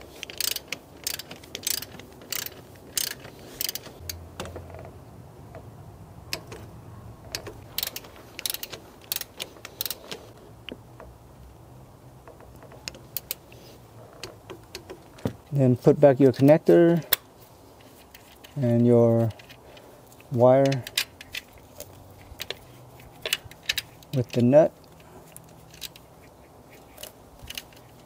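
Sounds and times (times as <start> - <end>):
torque wrench ratcheting clicks: 0.2 - 4.2, 7.4 - 10.0.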